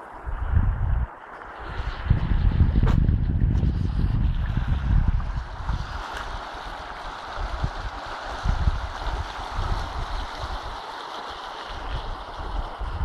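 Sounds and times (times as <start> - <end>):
low microphone rumbles: 0.2 - 6.4
river water rushing: 4.2 - 13.0.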